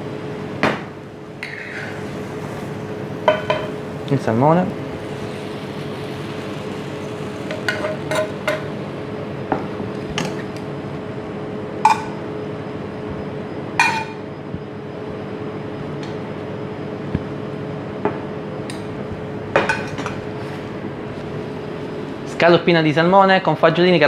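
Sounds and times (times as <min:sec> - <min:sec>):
utensils clinking on pans: 0:07.5 - 0:08.7, 0:13.8 - 0:14.2.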